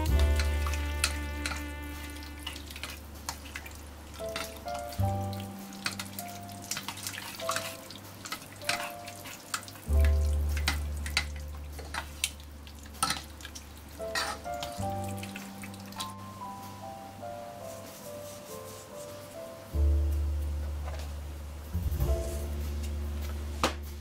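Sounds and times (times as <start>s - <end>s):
slow background music: 0.0s - 3.3s, 4.0s - 24.0s
wet squelching of pasta: 2.0s - 16.2s.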